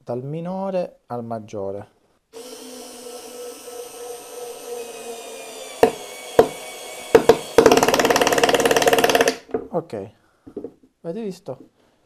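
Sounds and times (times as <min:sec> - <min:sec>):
screwdriver motor whine: 0:02.4 - 0:09.3.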